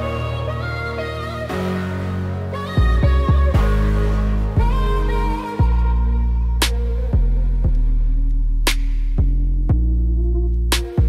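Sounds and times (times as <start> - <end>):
music with bass and drum beat: 2.8 - 11.0
sharp crack: 8.7 - 9.2.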